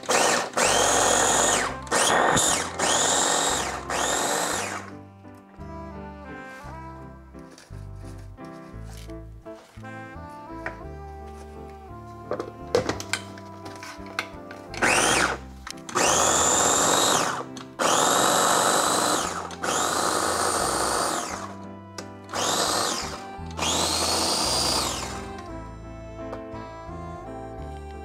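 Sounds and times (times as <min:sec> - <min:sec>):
blender clicks: 0:00.0 - 0:04.9, 0:14.2 - 0:25.2
electric blender whining: 0:00.0 - 0:05.0, 0:14.2 - 0:25.6.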